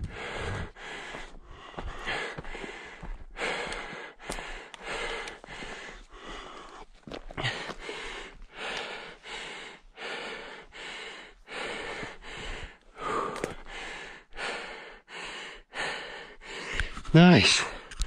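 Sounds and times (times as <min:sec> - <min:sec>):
man panting hard: 0:00.0 - 0:17.9.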